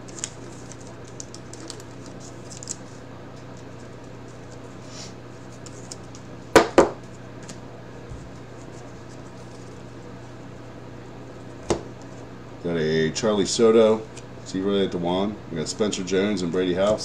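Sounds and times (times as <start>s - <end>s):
cards rustling: 0.0s - 4.7s, 5.3s - 6.3s, 8.2s - 10.3s
low steady hum: 0.0s - 17.0s.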